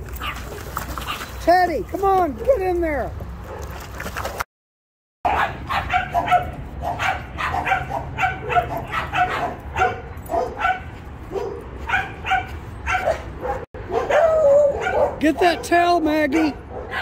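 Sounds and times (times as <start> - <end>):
dog barking: 5.3 - 17.0.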